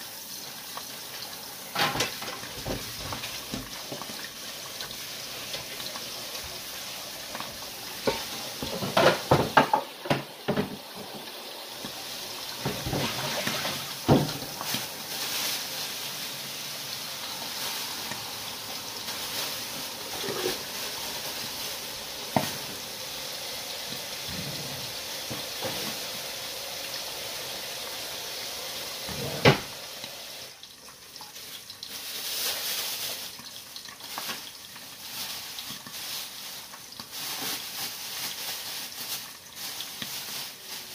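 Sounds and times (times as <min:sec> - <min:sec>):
dishes clattering in sink: 0:01.7 - 0:04.3, 0:08.0 - 0:11.2, 0:12.6 - 0:14.8, 0:20.1 - 0:20.7, 0:24.2 - 0:26.1, 0:29.1 - 0:29.8
tap running into sink: 0:07.4 - 0:12.0, 0:12.6 - 0:14.6, 0:29.1 - 0:29.8.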